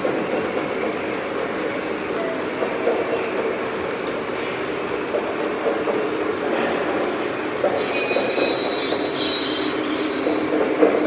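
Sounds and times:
model train wheels rumbling: 0.0s - 11.0s.

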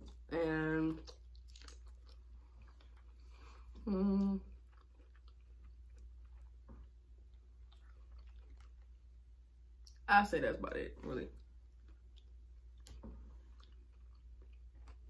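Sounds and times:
person chewing: 0.9s - 10.0s, 11.4s - 15.0s
person humming mm: 3.8s - 4.4s.

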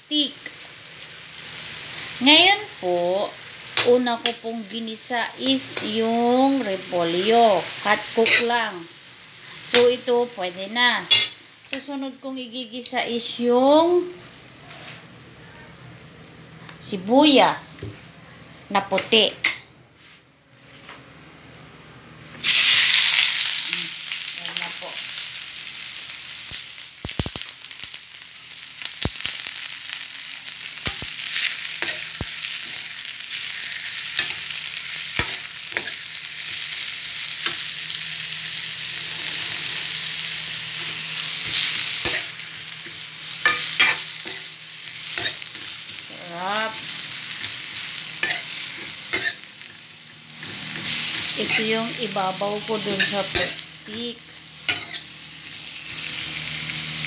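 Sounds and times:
onion sizzling in hot oil: 0.0s - 15.3s, 22.4s - 57.0s
metal spoon scraping pan: 8.2s - 8.5s, 48.2s - 49.4s, 54.7s - 55.1s.

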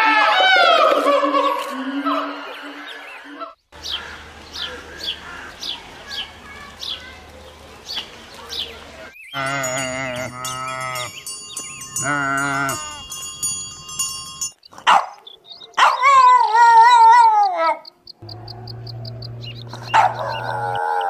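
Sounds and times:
dog howling: 0.0s - 2.4s, 15.8s - 17.8s, 19.7s - 21.0s
sheep bleating: 9.4s - 11.1s, 12.0s - 13.1s.

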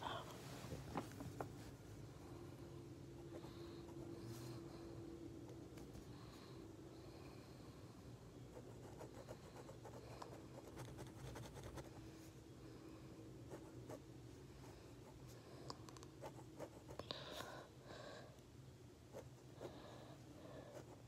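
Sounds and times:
pen scratching on paper: 8.5s - 12.0s.

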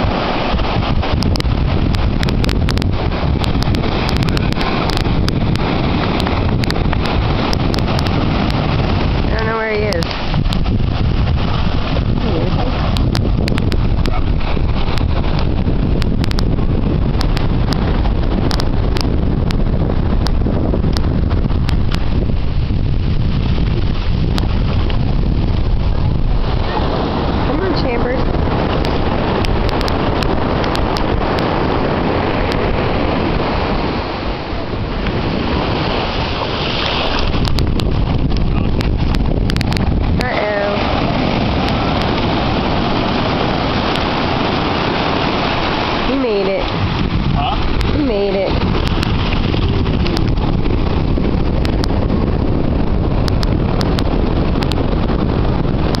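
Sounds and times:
surf washing on beach: 0.0s - 56.0s
wind buffeting microphone: 0.0s - 56.0s
light ticks: 6.2s - 8.1s, 16.0s - 16.5s, 17.2s - 17.8s, 18.5s - 19.6s, 28.8s - 30.8s, 38.8s - 39.8s, 53.2s - 54.8s.

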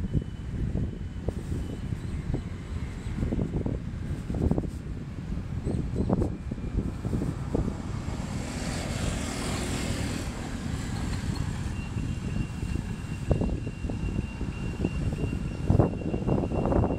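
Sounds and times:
passing road traffic: 0.0s - 16.9s
wind buffeting microphone: 0.0s - 16.9s
vehicle passing: 7.1s - 11.7s.

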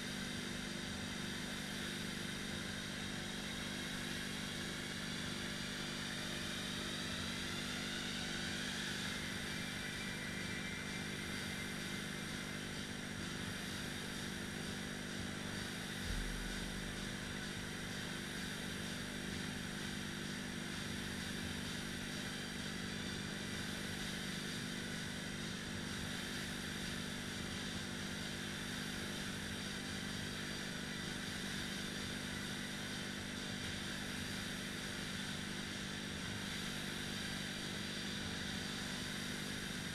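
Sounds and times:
rowing machine flywheel whir: 0.0s - 39.9s.

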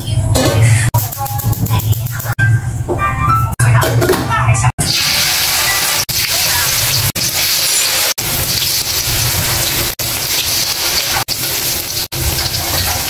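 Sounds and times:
fritters sizzling in hot oil: 4.9s - 13.0s.

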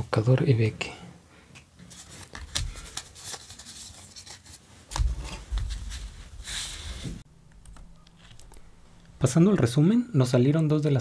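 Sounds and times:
cards sliding and rubbing: 1.8s - 7.2s.

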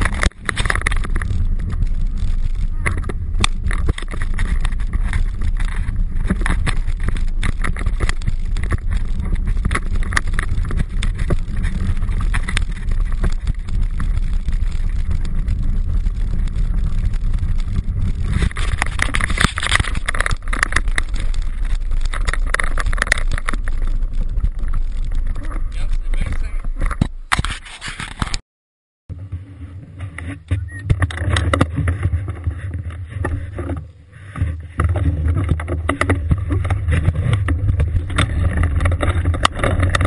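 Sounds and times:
bike knocking and rattling: 0.0s - 28.4s, 29.1s - 40.0s
wind and tyre rumble: 0.0s - 28.4s, 29.1s - 40.0s.

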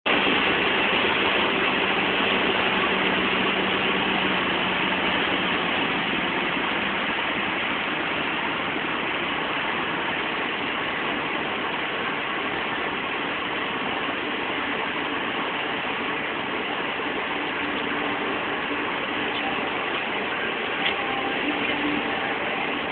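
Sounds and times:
car road and engine noise: 0.0s - 22.9s
faint hum: 0.1s - 22.9s.

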